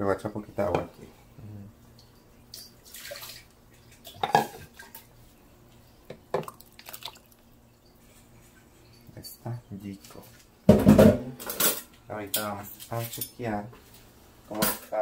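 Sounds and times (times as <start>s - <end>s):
water splashing into plastic jar: 6.3s - 7.4s.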